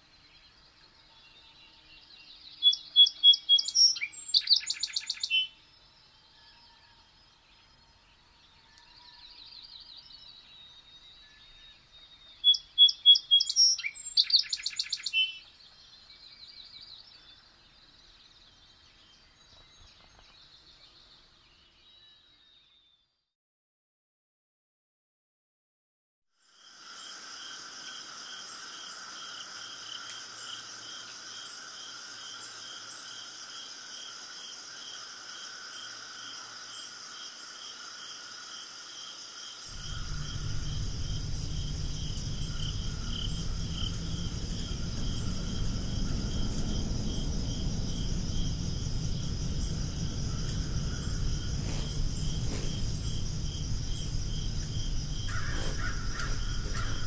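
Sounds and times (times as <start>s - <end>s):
insects chirping: 1.9s - 11.2s, 12.1s - 21.2s, 26.4s - 57.0s
high continuous drone: 39.7s - 57.0s
low rumble of noise: 39.7s - 57.0s.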